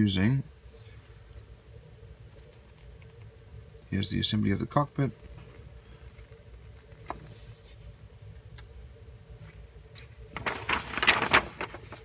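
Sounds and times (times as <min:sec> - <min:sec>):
low steady hum: 0:00.0 - 0:12.0
paper page rustling: 0:06.1 - 0:08.0, 0:09.4 - 0:12.0.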